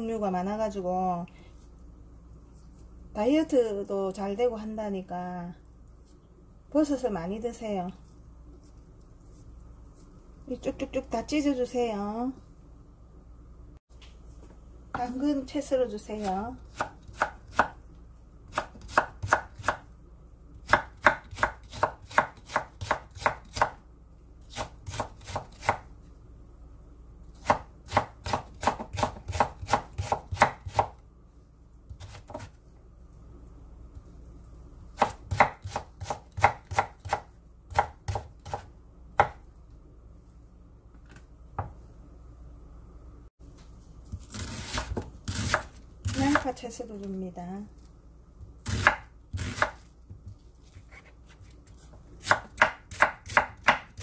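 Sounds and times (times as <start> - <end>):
knife chopping on wooden board: 16.7 - 17.8, 18.5 - 19.8, 20.6 - 23.8, 27.4 - 30.9, 35.0 - 39.4, 44.2 - 46.4, 48.6 - 51.4, 52.2 - 54.0.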